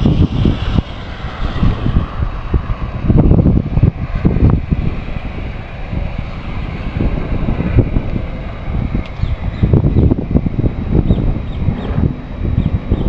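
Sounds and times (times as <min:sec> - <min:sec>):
rain hiss: 0:00.0 - 0:11.4
wind buffeting microphone: 0:00.0 - 0:13.0.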